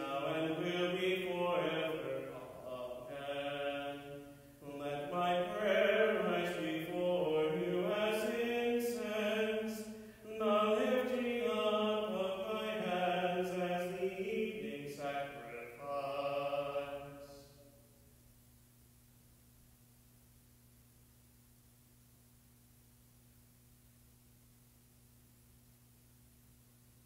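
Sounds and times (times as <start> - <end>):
man chanting: 0.0 - 17.6.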